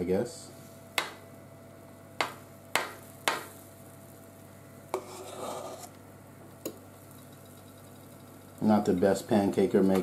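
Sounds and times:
soft scraping: 5.0s - 5.9s.

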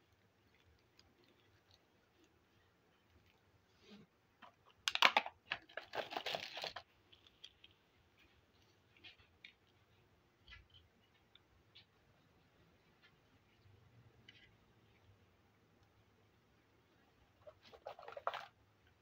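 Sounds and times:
plastic toys clicking: 4.4s - 7.7s
toys rustling clatter: 4.8s - 7.7s, 17.4s - 18.6s.

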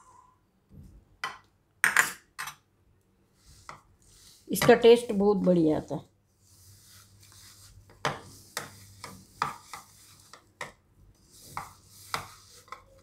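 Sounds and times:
soft rubbing: 3.3s - 13.0s.

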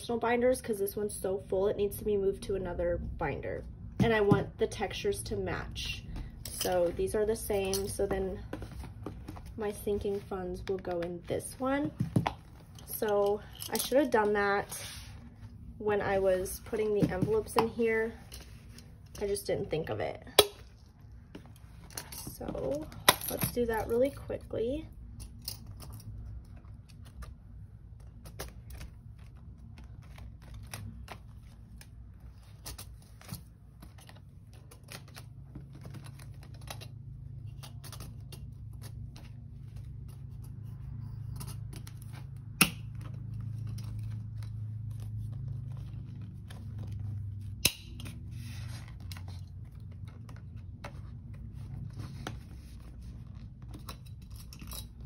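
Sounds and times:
paper envelopes rustling: 26.4s - 47.6s.

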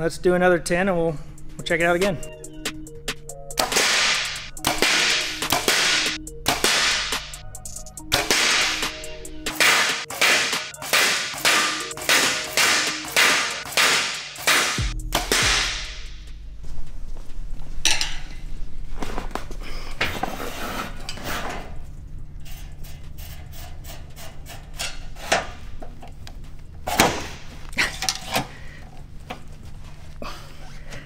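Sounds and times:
low steady hum: 14.8s - 31.0s.

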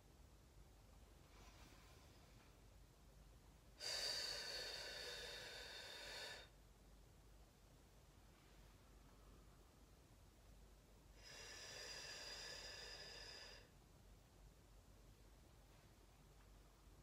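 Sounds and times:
person breathing out hard: 3.8s - 6.5s, 11.2s - 13.7s.

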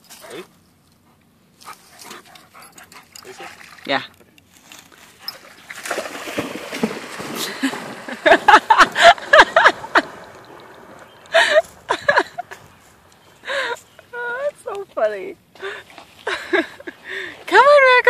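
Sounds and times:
dog splashing in water: 5.2s - 11.3s.

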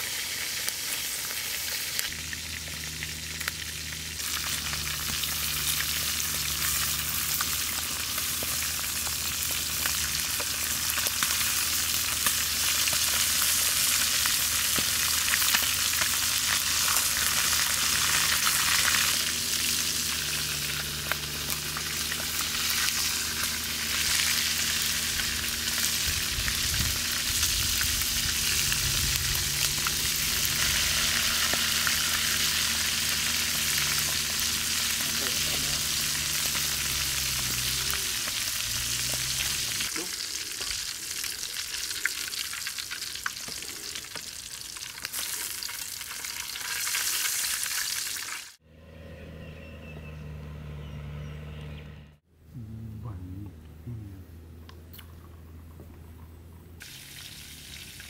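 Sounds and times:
deep-frying sizzle with crackles: 0.0s - 48.6s, 56.8s - 58.0s.

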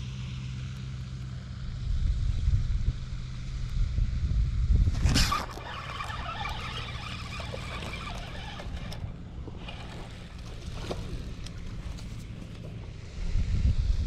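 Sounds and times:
wind rumbling on microphone: 1.7s - 14.0s
fishing reel gears whirring: 4.9s - 12.9s.

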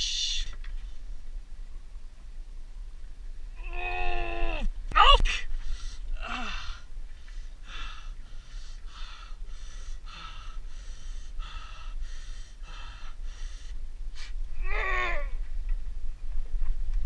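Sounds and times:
man gasping for breath: 5.5s - 14.4s
man groaning: 6.2s - 6.8s.

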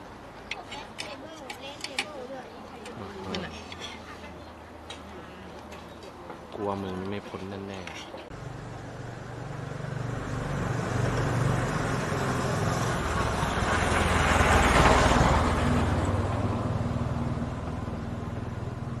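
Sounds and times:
vehicle passing by: 8.4s - 19.0s.

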